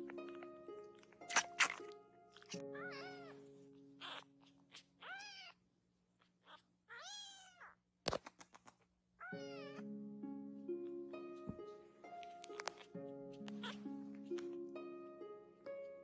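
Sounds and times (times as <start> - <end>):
soft background music: 0.0 - 5.5, 9.2 - 16.0
kitten mewing: 1.2 - 3.4, 4.0 - 5.6, 6.2 - 7.8.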